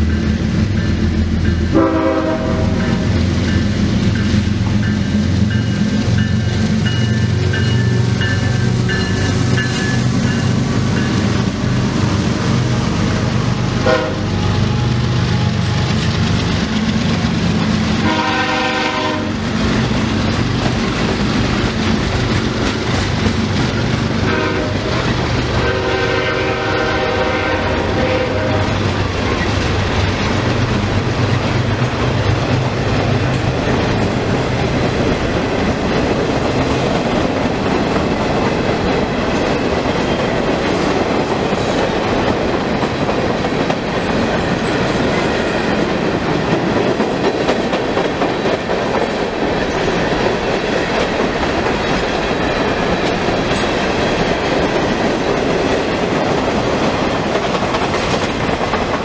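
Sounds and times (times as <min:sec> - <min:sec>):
freight train rolling past: 0:00.0 - 0:59.0
steel wheels clattering on rails: 0:12.8 - 0:26.6, 0:28.7 - 0:59.0.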